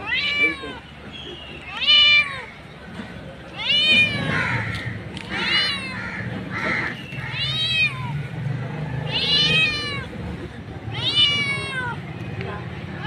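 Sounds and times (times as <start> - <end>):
cat meowing: 0.0 - 0.9, 1.6 - 2.5, 3.5 - 8.3, 9.0 - 12.1.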